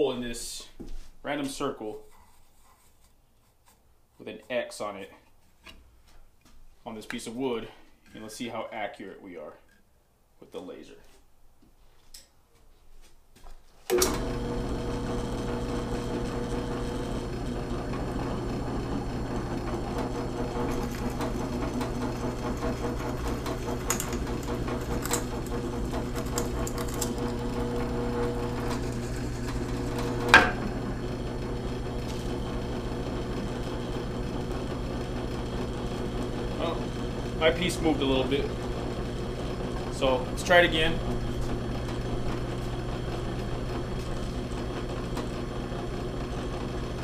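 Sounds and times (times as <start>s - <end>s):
drill press motor humming: 13.9s - 47.0s.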